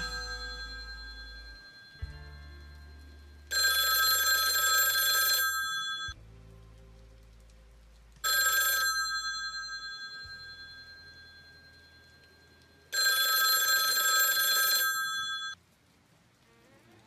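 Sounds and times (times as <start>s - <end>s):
telephone bell ringing: 0.0s - 2.2s, 3.5s - 6.2s, 8.3s - 12.2s, 12.9s - 15.6s.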